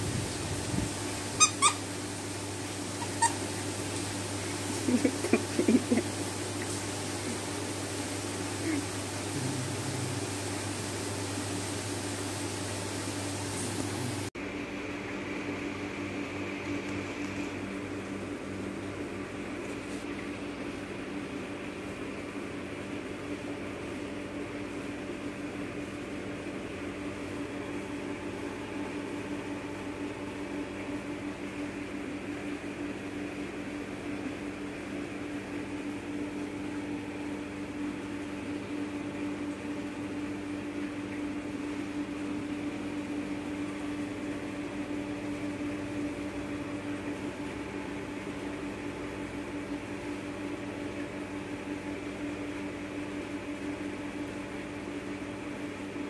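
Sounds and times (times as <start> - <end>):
steady electrical hum: 0.0 - 56.0.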